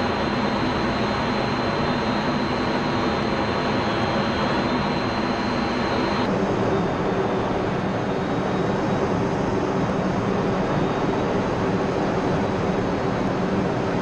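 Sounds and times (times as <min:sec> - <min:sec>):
thin high whine: 0:00.0 - 0:08.2
jet engine roar: 0:00.0 - 0:14.0.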